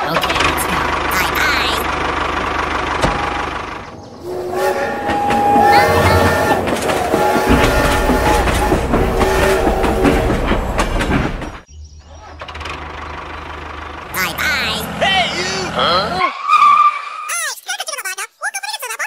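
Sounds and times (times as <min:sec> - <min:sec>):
low hum: 0:01.9 - 0:11.7
electronic train whistle tones: 0:04.2 - 0:10.9.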